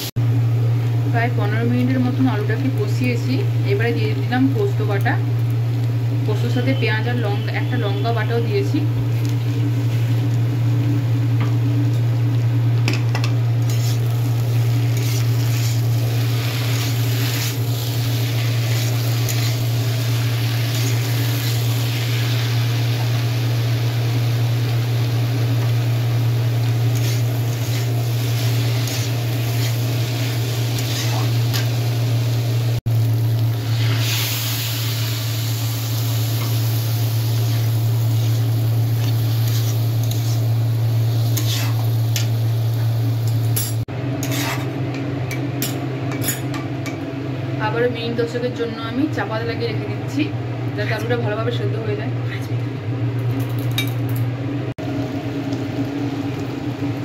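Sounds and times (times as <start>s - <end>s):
light frying sizzle: 0.0s - 47.4s, 54.8s - 57.0s
steady low hum: 0.0s - 57.0s
metal spatula scraping a wok: 13.6s - 14.2s, 14.8s - 21.5s, 26.8s - 31.7s, 37.4s - 40.6s, 41.2s - 42.3s, 43.7s - 44.8s.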